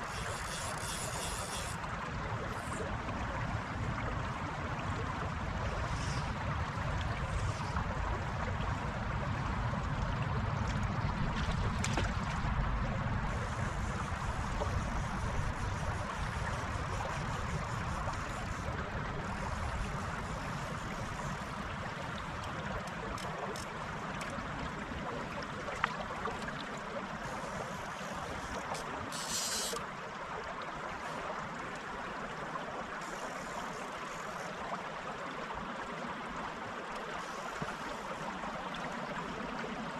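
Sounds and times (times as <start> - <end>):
stream flowing and rippling: 0.0 - 39.9
brief high hiss: 28.6 - 29.8.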